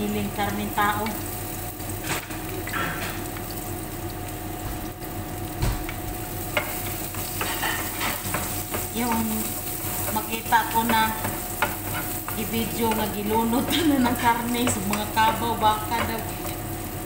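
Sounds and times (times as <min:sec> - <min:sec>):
garlic sizzling in hot oil: 0:00.0 - 0:17.0.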